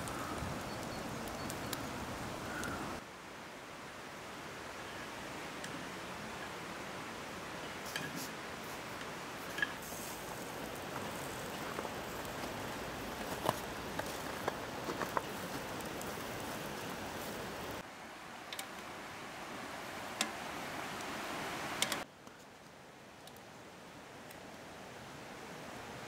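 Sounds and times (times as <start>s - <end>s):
embers crackling and popping: 0.0s - 3.0s, 7.7s - 17.8s, 19.9s - 23.5s
meat sizzling on grill: 9.6s - 17.8s.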